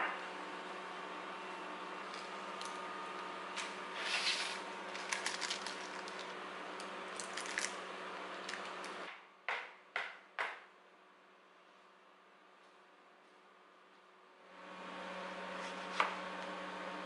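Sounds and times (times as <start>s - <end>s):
background hum: 0.0s - 9.4s
scraper scraping parchment paper: 3.9s - 6.3s.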